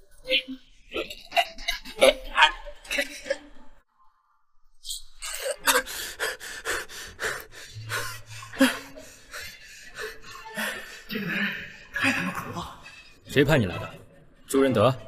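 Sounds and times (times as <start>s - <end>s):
man gasping and panting: 5.2s - 13.2s.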